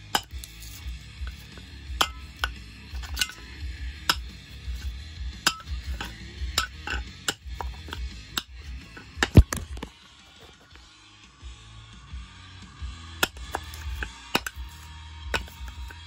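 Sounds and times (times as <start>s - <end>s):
hammer striking metal: 0.1s - 9.9s, 13.2s - 14.8s, 15.4s - 16.0s.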